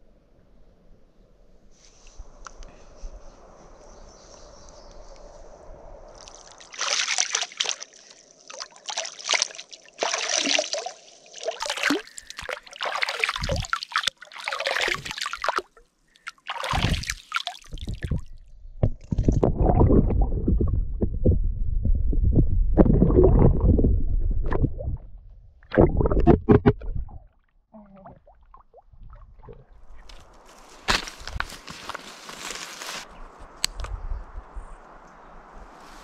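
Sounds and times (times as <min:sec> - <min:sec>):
hand splashing stream water: 0:06.2 - 0:18.2
water gurgling into bottle: 0:11.4 - 0:15.8, 0:16.4 - 0:29.8.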